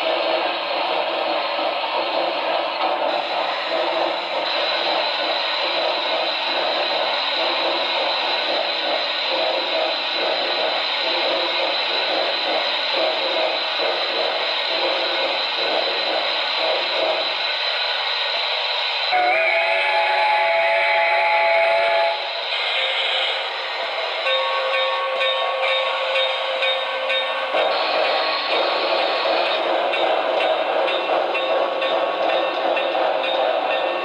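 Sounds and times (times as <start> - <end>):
steam exhaust chuffing: 0.0 - 34.0
steam hiss: 0.0 - 34.0
steam whistle: 19.1 - 22.8.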